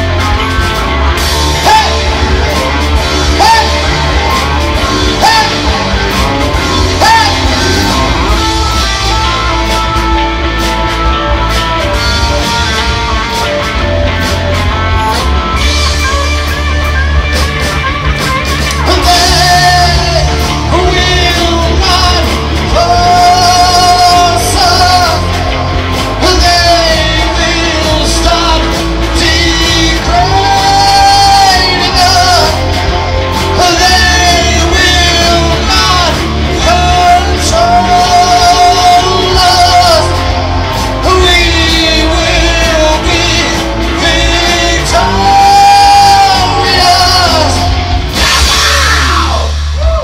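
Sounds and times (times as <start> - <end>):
rock band playing: 0.0 - 50.0
person singing long held lines: 18.8 - 50.0.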